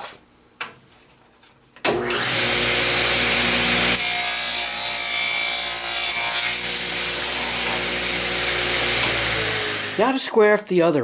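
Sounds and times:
table saw motor whine: 2.0 - 10.1
saw blade cutting wood: 2.0 - 10.2.

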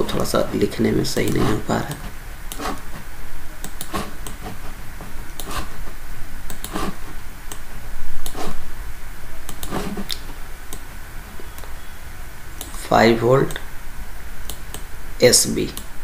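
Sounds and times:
steady low hum: 0.0 - 16.0
computer mouse clicking: 1.2 - 2.8, 3.6 - 4.5, 5.3 - 5.7, 6.5 - 8.6, 9.5 - 10.9, 12.6 - 12.8, 14.4 - 14.9, 15.7 - 15.9.

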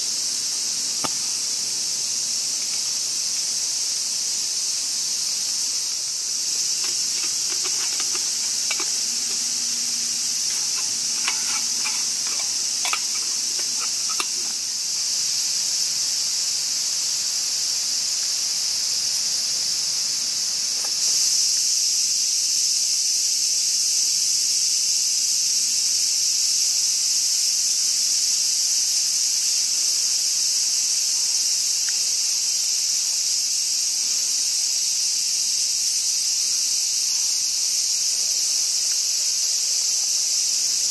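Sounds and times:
insects shrilling: 0.0 - 23.4.

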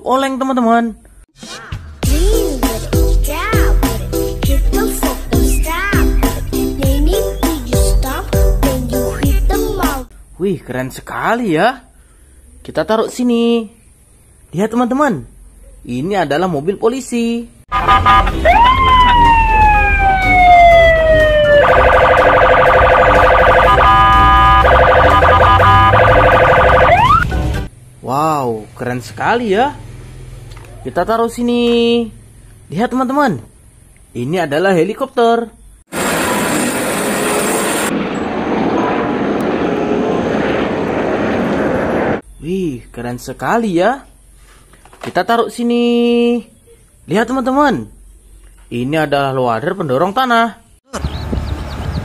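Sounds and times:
police siren wailing: 17.7 - 27.3
helicopter turbine and rotor: 35.9 - 42.2.

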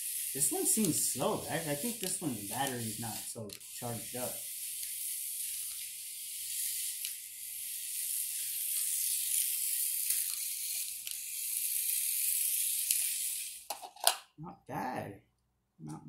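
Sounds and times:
high hiss: 0.0 - 4.5.

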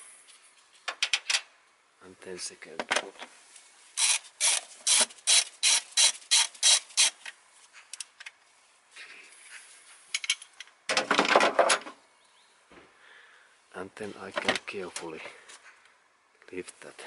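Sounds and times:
hand ratchet clicking: 4.0 - 7.2.

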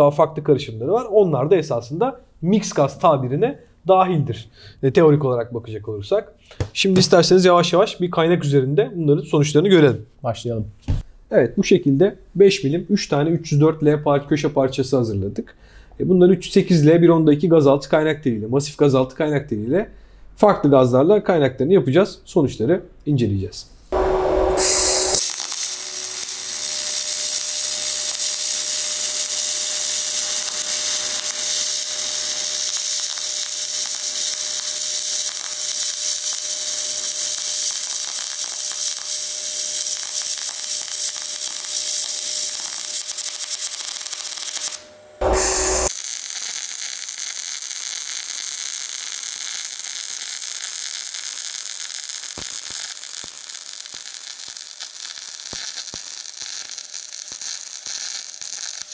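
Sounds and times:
welding arc crackling hiss: 23.9 - 58.9.

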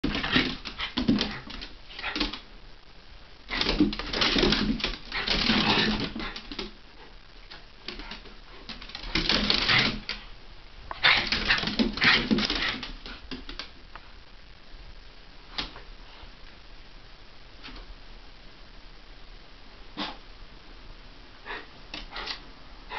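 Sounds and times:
dogs scuffling and play-growling: 0.0 - 2.5, 3.5 - 10.3, 10.9 - 13.7.

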